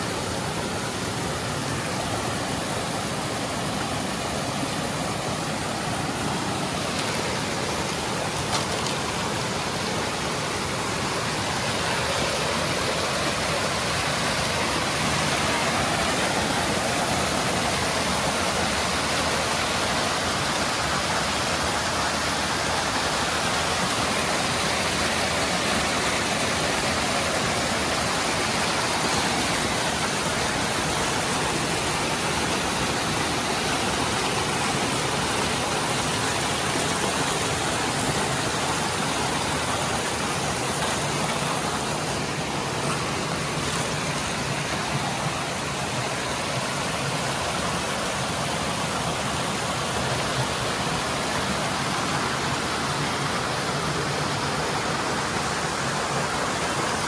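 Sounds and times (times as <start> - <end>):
creek water rushing and splashing: 0.0 - 57.0.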